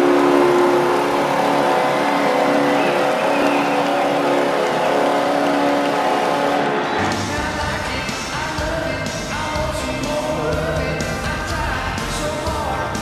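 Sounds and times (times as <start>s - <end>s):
arena goal horn blaring: 0.0s - 7.4s
crowd cheering: 0.0s - 8.4s.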